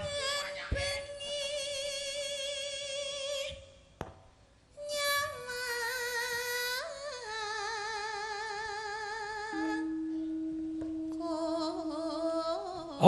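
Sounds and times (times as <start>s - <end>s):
woman singing with vibrato: 0.0s - 3.6s, 11.0s - 13.0s.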